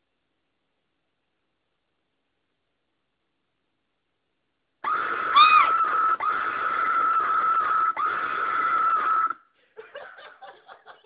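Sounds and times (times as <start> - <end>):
loud high-pitched scream: 4.8 - 9.4.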